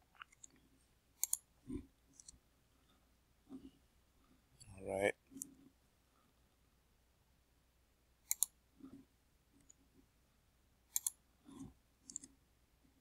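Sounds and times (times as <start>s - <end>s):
computer mouse clicks: 1.2s - 1.5s, 2.1s - 2.4s, 8.2s - 8.6s, 10.9s - 12.4s.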